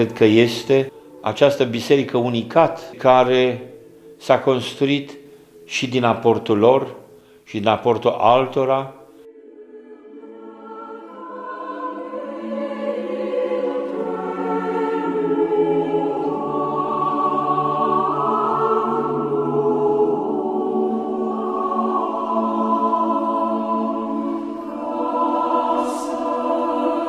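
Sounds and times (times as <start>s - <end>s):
choir singing a chant: 0.0s - 27.0s.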